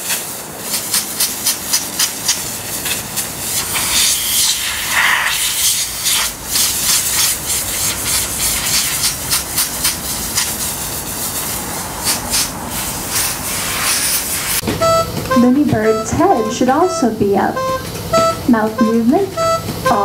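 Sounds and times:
compressed air blow gun hissing: 0.0 - 14.6.

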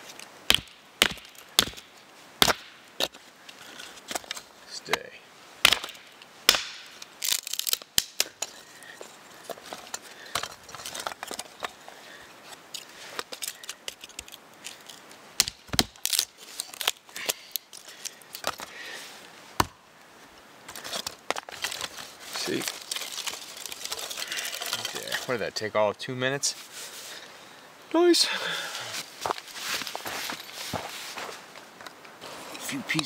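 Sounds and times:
knife splitting wooden sticks: 0.0 - 8.6, 12.5 - 18.7.

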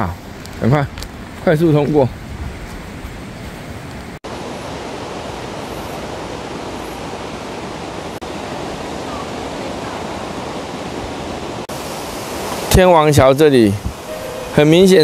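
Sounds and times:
car wind and road noise: 0.2 - 4.6.

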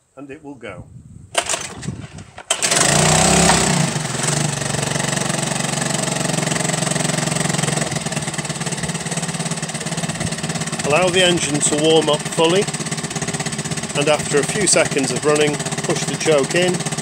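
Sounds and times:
outboard motor starting and running: 1.4 - 17.0.

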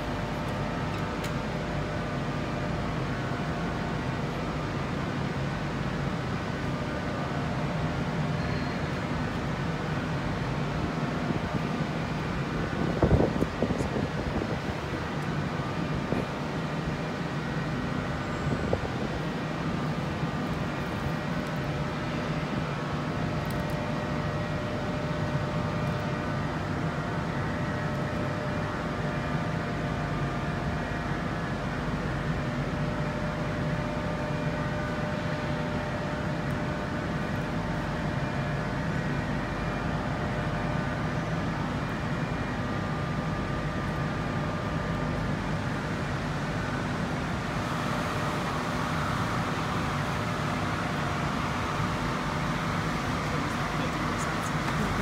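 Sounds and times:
machinery hum: 0.0 - 55.0.

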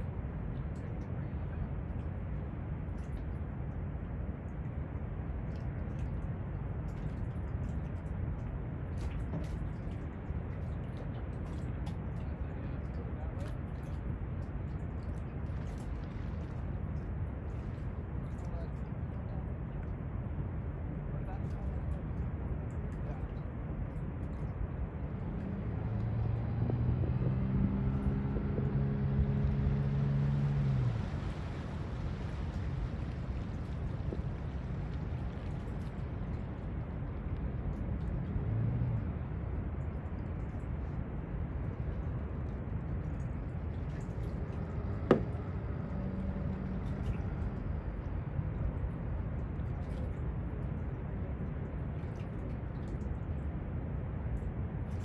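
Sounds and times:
wind rumble on microphone: 0.0 - 55.0
outboard motor running: 43.6 - 48.1.

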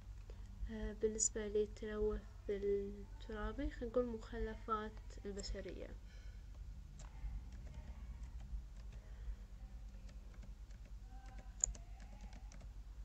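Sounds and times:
keyboard key clicks: 9.9 - 12.7.

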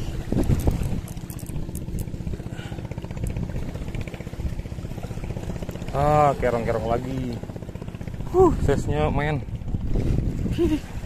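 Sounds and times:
fishing reel whirring: 0.0 - 6.0.

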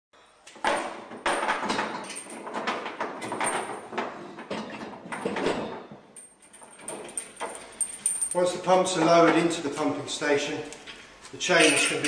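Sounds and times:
metal chain rattling and clanking: 0.6 - 9.5, 11.4 - 12.0.

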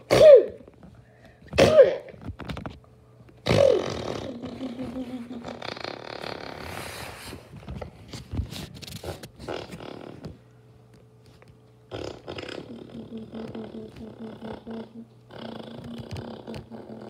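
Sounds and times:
rustling and scraping: 6.2 - 10.4
dog rumbling: 11.9 - 17.0.

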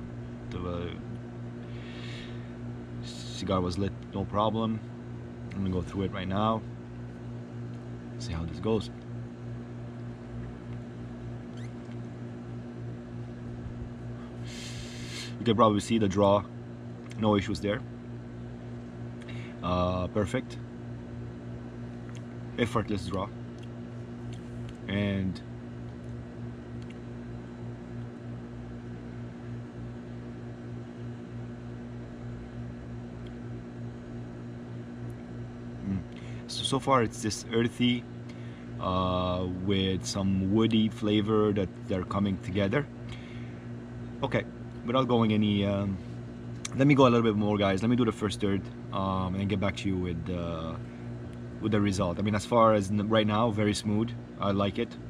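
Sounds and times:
steady low hum: 0.0 - 55.0
faint high squeak: 11.5 - 11.8.

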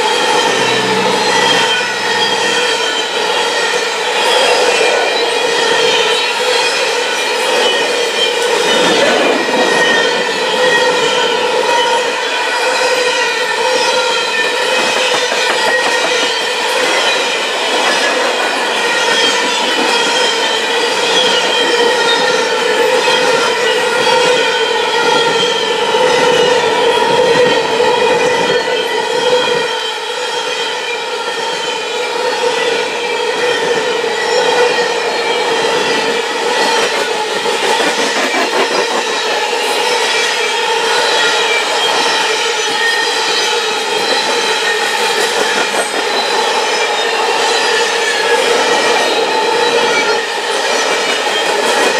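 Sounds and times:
high metallic ringing: 0.0 - 4.8
train wheels clattering over rails: 0.0 - 27.6, 32.7 - 51.9.

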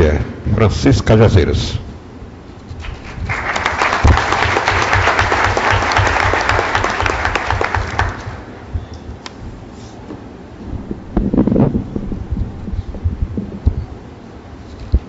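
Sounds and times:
audience applauding: 2.8 - 8.5.

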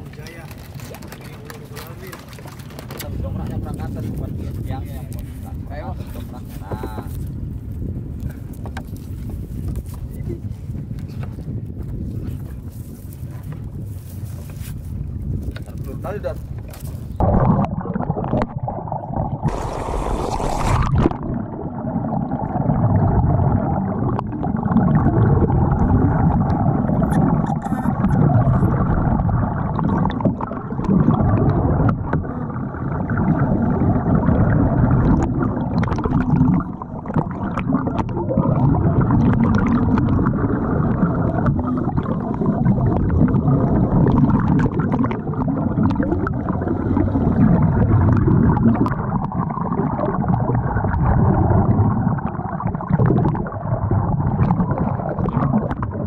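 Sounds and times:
underwater rushing and gurgling: 0.0 - 14.2, 14.8 - 56.0
bubbles: 15.7 - 56.0.

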